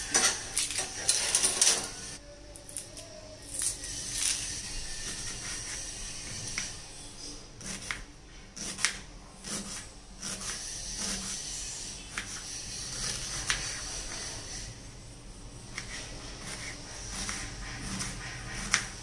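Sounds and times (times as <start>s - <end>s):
knife slicing onion: 2.7s - 6.8s, 7.6s - 14.8s, 15.6s - 19.0s
blade tapping cutting board: 17.2s - 19.0s.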